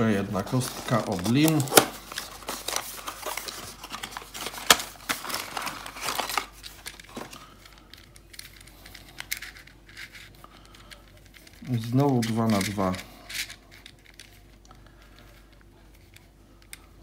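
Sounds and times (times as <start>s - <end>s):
cardboard packaging crinkling: 0.0s - 14.6s.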